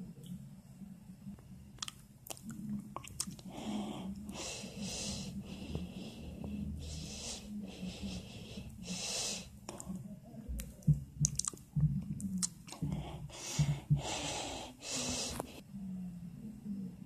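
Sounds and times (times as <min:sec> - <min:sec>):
man breathing heavily and wheezily: 0:03.4 - 0:10.0, 0:12.7 - 0:15.6
mouth clicks: 0:10.6 - 0:12.9.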